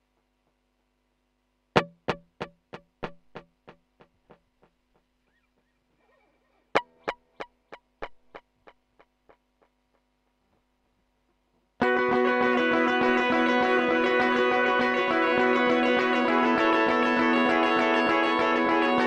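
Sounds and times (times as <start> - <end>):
electric guitar notes with echoes: 11.8 - 19.0
loud sustained guitar: 11.8 - 19.0.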